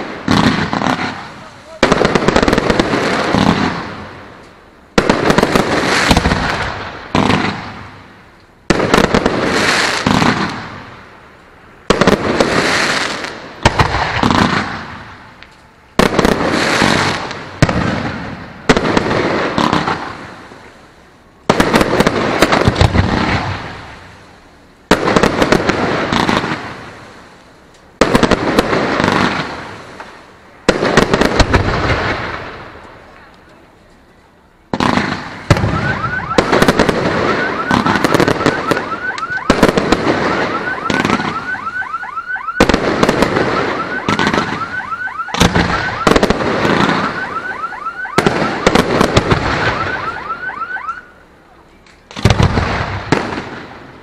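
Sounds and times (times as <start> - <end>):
fireworks bursting with crackle: 0.0 - 54.0.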